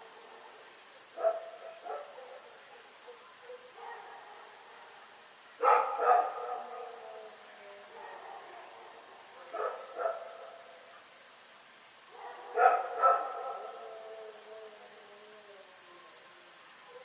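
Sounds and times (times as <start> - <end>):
dog barking: 1.2 - 5.0, 5.6 - 6.9, 7.9 - 10.6, 12.1 - 13.8.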